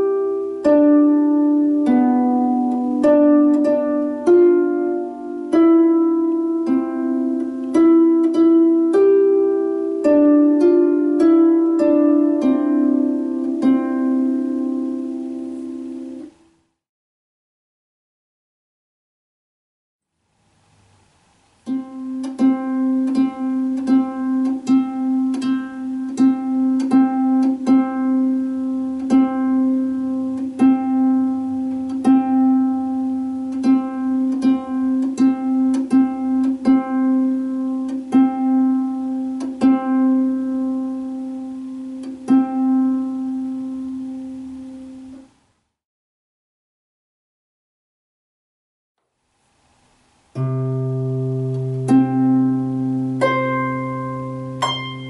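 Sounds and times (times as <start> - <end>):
harp string plucked: 51.4 - 55.0.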